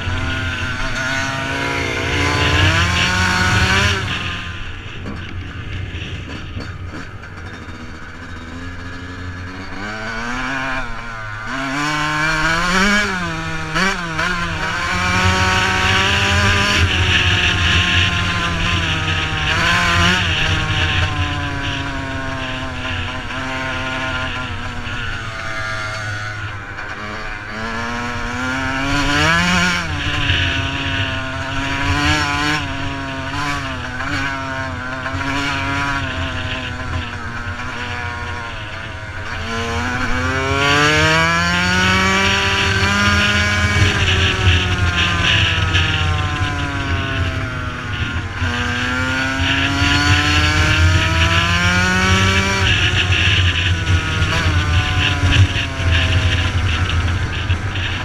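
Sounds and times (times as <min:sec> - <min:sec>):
two-stroke motorcycle engine revving: 0:00.0 - 0:58.0.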